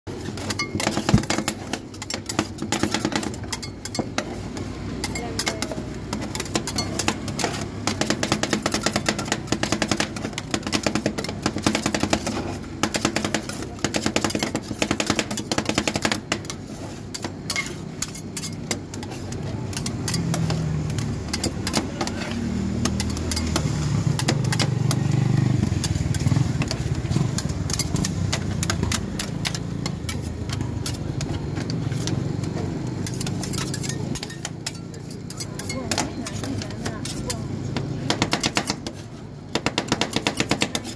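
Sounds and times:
metal spatulas tapping steel plate: 0.4 - 4.3, 5.0 - 19.1, 19.7 - 25.0, 33.0 - 37.4.

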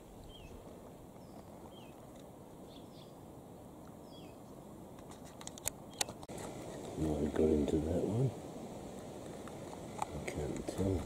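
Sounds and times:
bird chirping: 0.0 - 3.2, 4.0 - 4.6
low steady hiss: 0.0 - 11.0.

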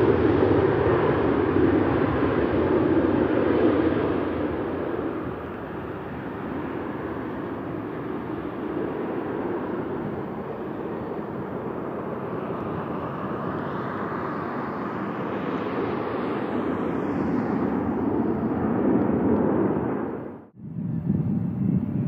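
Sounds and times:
jet engines at takeoff: 0.0 - 22.0.

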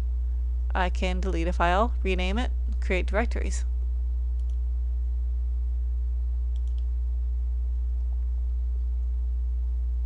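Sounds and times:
low electrical hum: 0.0 - 10.0
computer mouse clicks: 4.4 - 4.6, 6.5 - 6.9.

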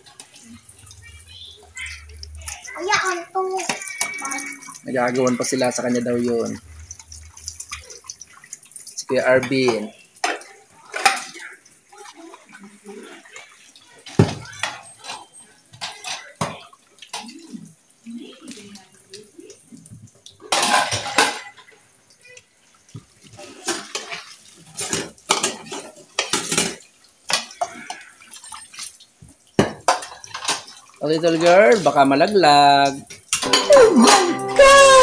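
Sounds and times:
tap water running: 0.0 - 35.0
dishes clinking in a steel sink: 9.4 - 11.5, 14.1 - 17.4, 20.4 - 21.8, 23.6 - 28.9, 29.6 - 32.0, 32.8 - 35.0.

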